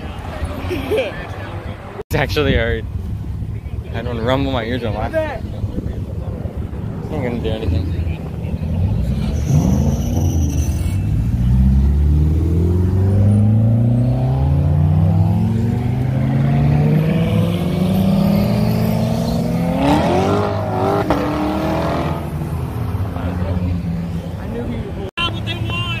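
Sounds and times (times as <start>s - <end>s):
car engine accelerating: 6.6s - 24.7s.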